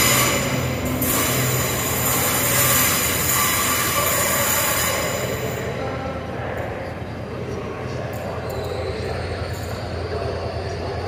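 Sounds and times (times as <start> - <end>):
train wheels squealing on rails: 0.0 - 5.7, 8.1 - 11.0.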